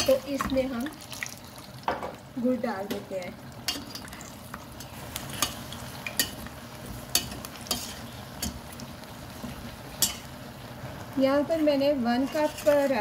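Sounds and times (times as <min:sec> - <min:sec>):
oil sizzling in a pot: 0:00.0 - 0:13.0
spoon clinking against pot: 0:10.0 - 0:10.3.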